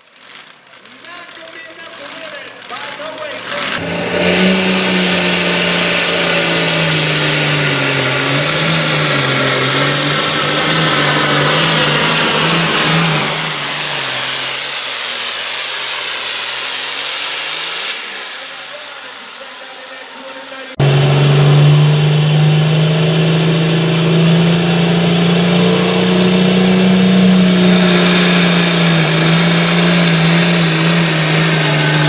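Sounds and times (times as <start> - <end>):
tractor diesel engine running: 0.0 - 32.0
high whine: 3.5 - 32.0.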